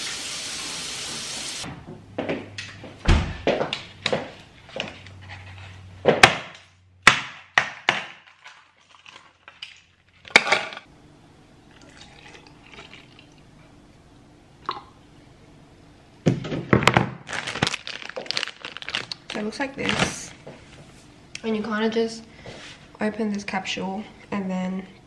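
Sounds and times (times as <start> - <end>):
milk pouring into cup: 11.7 - 13.4.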